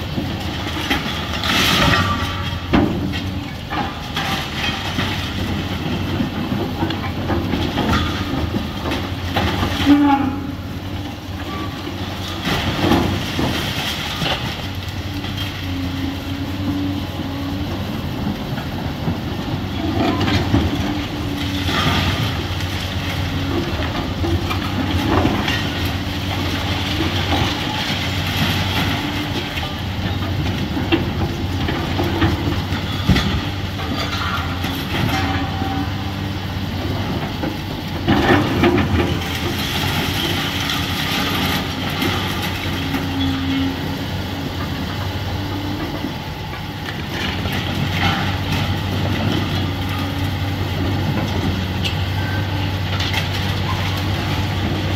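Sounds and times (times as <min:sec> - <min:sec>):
rubble crashing and clattering: 0:00.0 - 0:10.5, 0:11.4 - 0:15.6, 0:18.3 - 0:36.1, 0:36.8 - 0:43.4
excavator diesel engine running: 0:00.0 - 0:54.9.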